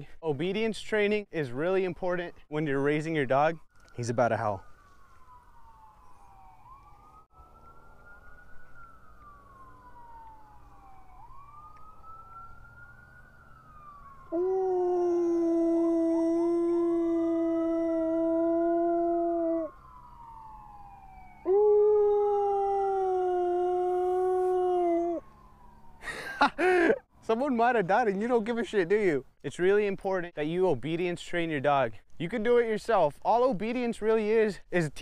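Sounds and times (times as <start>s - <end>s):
faint siren wailing: 1.6s - 28.9s
dog howling: 14.3s - 19.8s, 21.4s - 25.2s.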